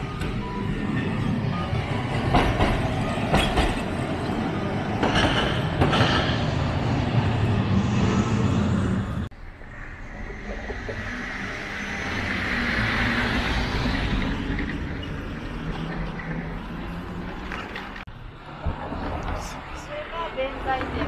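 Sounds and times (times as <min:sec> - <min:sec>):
tram rumbling along track: 0:00.0 - 0:21.0
wheels clacking over rail joints: 0:00.1 - 0:06.8.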